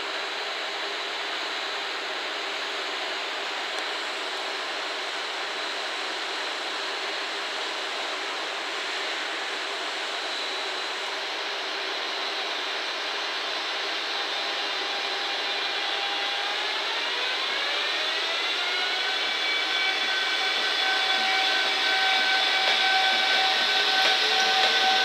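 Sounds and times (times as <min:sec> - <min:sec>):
electric inverter whine: 0:00.0 - 0:25.0
train rushing hiss: 0:19.6 - 0:25.0.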